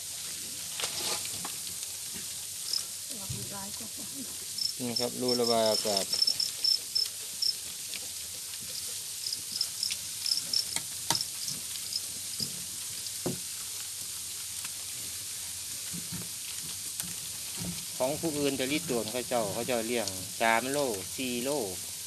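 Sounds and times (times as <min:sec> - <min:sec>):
steady hiss: 0:00.0 - 0:22.0
crickets chirping: 0:02.6 - 0:03.0, 0:04.4 - 0:07.6, 0:08.8 - 0:12.1.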